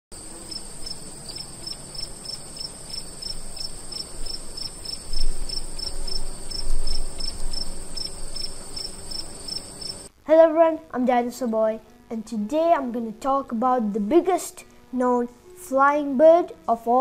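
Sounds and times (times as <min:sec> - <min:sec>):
crickets chirping: 0:00.2 - 0:10.1
high insect trill: 0:00.2 - 0:10.1
low rumbles: 0:00.7 - 0:10.1.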